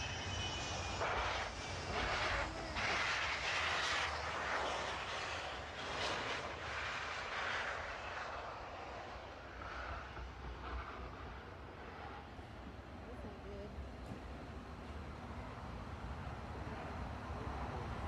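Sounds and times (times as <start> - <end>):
jet engine rushing noise: 0.0 - 12.7.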